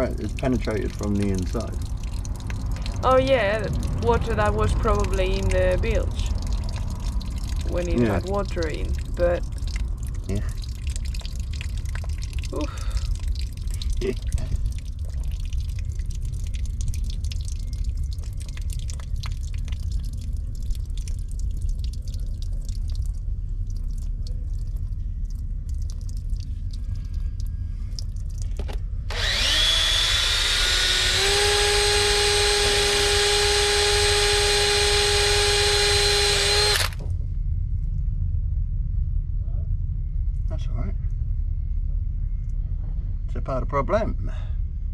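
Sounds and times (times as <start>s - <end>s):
water dripping: 0.0s - 37.0s
low rumble: 0.0s - 44.9s
cordless drill whining: 29.1s - 37.0s.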